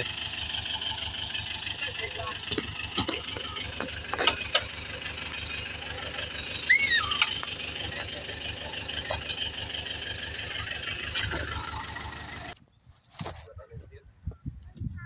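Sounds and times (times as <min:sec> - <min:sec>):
tractor engine rumbling: 0:00.0 - 0:12.7.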